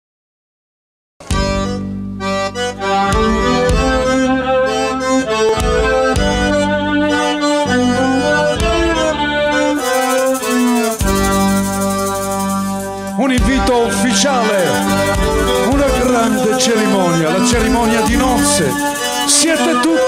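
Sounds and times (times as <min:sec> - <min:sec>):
accordion: 0:01.2 - 0:20.0
folk band playing: 0:01.3 - 0:20.0
bright jingling: 0:09.8 - 0:13.1, 0:14.6 - 0:19.8.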